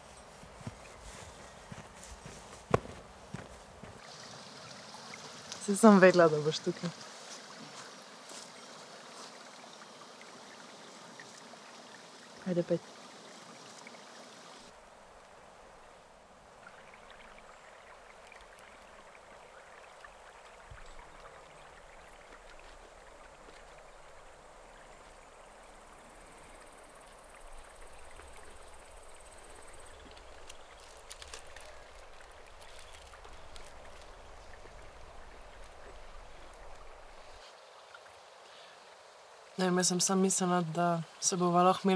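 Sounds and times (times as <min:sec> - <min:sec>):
forest stream rushing: 0:00.0 - 0:41.9
aluminium foil crinkling: 0:30.0 - 0:34.2.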